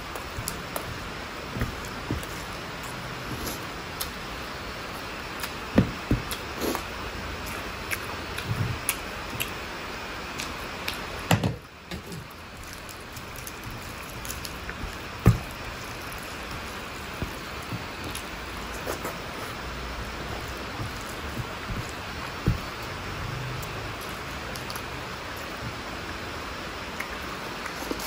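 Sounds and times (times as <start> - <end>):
steady hiss: 0.0 - 28.0
chewing and mouth clicks: 7.5 - 9.6
louder thumps: 14.8 - 15.9, 20.0 - 23.9.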